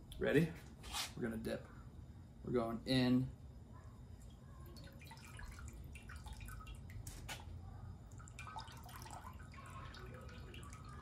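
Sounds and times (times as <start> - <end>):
broth dripping into a pot: 4.0 - 11.0.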